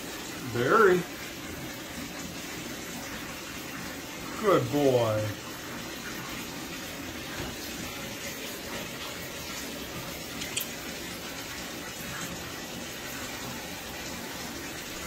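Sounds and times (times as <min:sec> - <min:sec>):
tap running into bathtub: 0:05.8 - 0:15.0.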